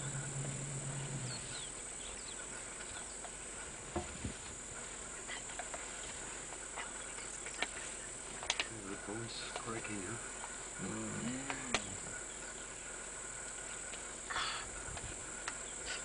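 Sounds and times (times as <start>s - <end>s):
bird chirps: 0.0s - 3.2s
insect sounds: 0.0s - 16.0s
low steady hum: 0.0s - 16.0s
steady background hiss: 0.0s - 16.0s.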